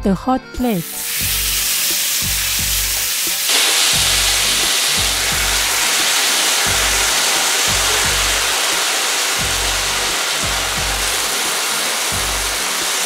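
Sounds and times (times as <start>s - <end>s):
background music with bass line: 0.0s - 3.4s, 4.0s - 5.8s, 6.7s - 8.6s, 9.4s - 11.3s, 12.1s - 12.6s
beef sizzling on hot plate: 0.8s - 13.0s.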